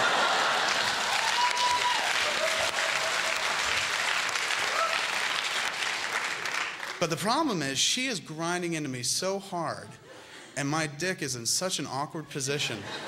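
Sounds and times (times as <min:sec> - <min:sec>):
audience applauding: 0:00.0 - 0:07.1
short whoops: 0:01.2 - 0:02.8, 0:04.7 - 0:05.1.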